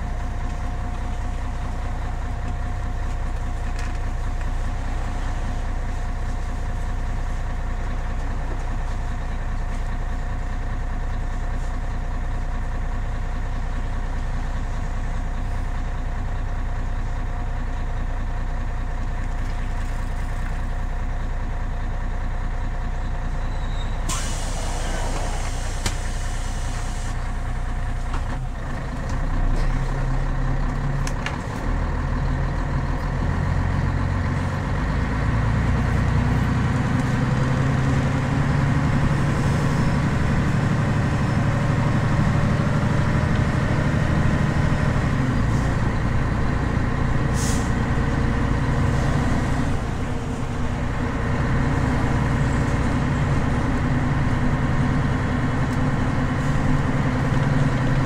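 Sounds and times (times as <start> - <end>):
bus diesel engine: 0.0 - 58.0
compressed air hiss: 24.1 - 27.2.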